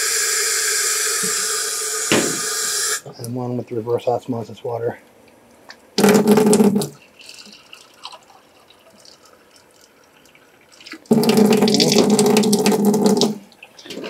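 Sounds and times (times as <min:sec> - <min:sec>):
water splashing into sink: 0:06.0 - 0:08.2, 0:10.7 - 0:14.0
faint water trickle: 0:06.9 - 0:14.0.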